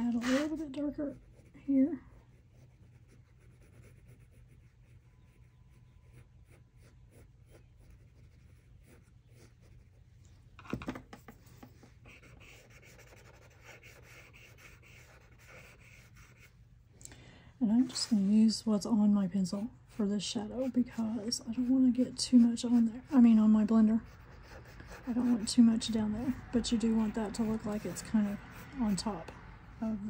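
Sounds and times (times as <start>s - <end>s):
pencil scratching on paper: 0.0s - 1.6s, 2.3s - 10.0s, 11.6s - 16.5s, 19.9s - 29.3s.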